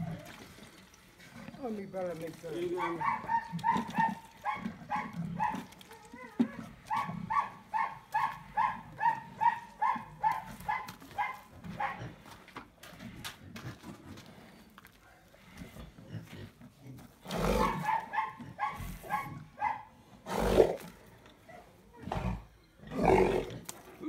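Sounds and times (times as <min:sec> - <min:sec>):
pig squealing: 0:02.8 - 0:10.6, 0:17.4 - 0:19.4.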